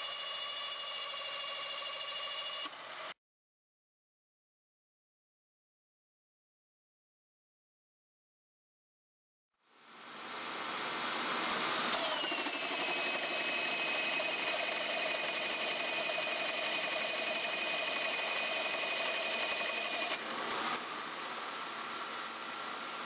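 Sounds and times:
hole saw grinding metal: 11.9 - 20.3.

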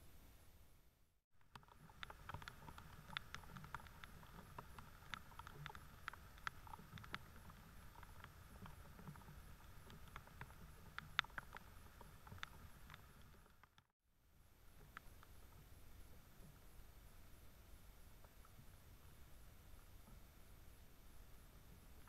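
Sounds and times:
rain drops ticking: 1.4 - 13.9.

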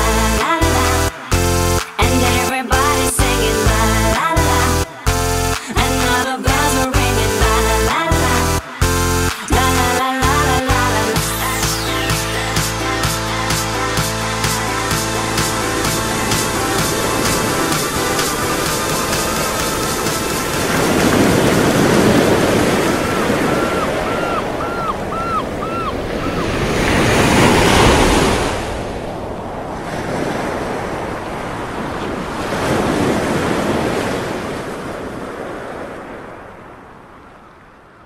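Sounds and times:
sea waves washing: 3.4 - 37.8
short chirping calls: 23.4 - 26.4.

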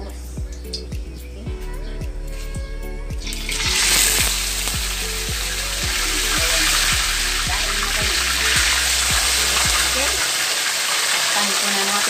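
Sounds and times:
background music with steady beat: 0.0 - 10.4
fish sizzling in hot oil: 3.2 - 12.0.

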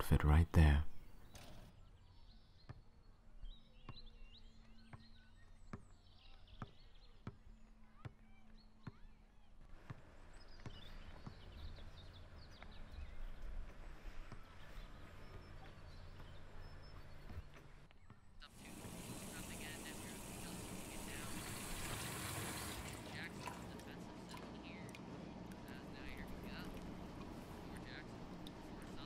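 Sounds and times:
faint bird chirps: 0.9 - 23.0
steady hiss: 18.6 - 23.0.

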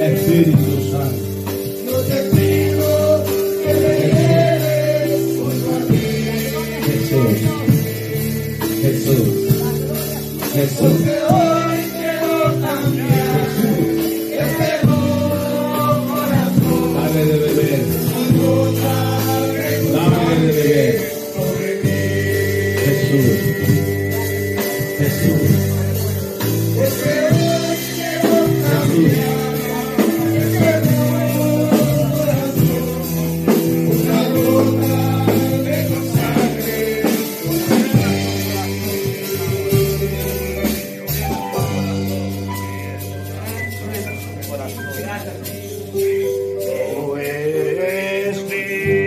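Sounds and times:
person singing: 45.5 - 49.0.

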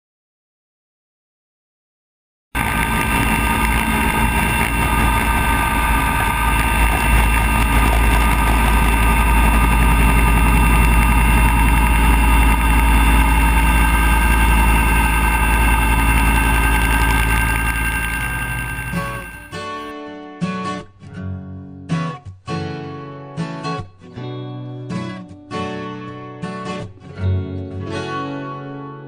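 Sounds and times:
helicopter engines whining: 2.6 - 19.8
helicopter rotor rumble: 2.6 - 19.8.

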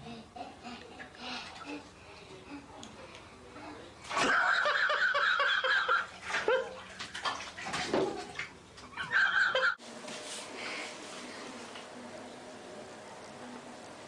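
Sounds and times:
water splashing in bathtub: 4.0 - 9.5.

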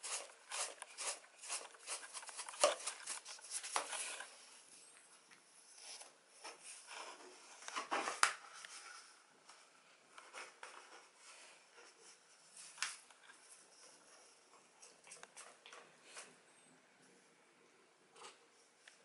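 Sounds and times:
cat scratching cardboard tube: 0.0 - 4.3.

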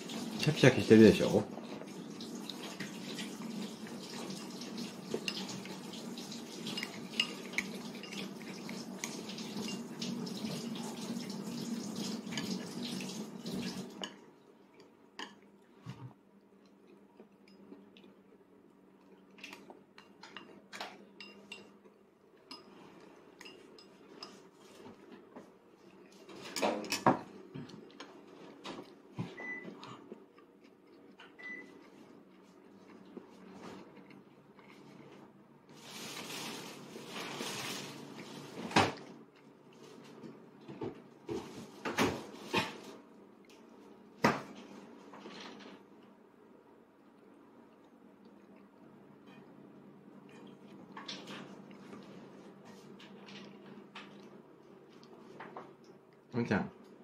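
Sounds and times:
water running from a tap: 0.0 - 14.0
dishes and cutlery clinking: 6.6 - 10.5, 20.0 - 21.8.

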